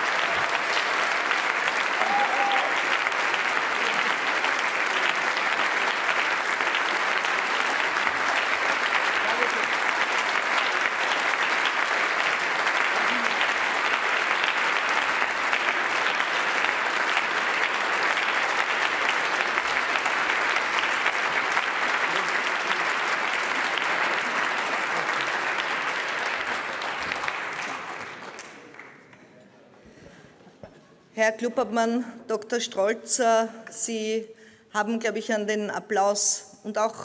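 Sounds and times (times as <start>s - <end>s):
crowd applauding: 0.0s - 29.2s.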